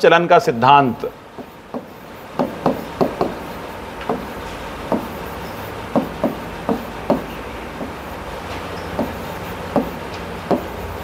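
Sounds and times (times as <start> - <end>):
stylus tapping on glass: 1.4 - 3.4, 4.0 - 4.3, 4.9 - 5.2, 6.0 - 8.0, 8.9 - 10.7.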